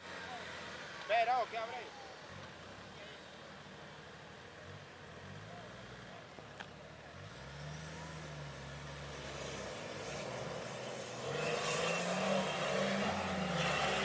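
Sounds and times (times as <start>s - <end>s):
off-road vehicle engine revving: 7.1s - 14.0s.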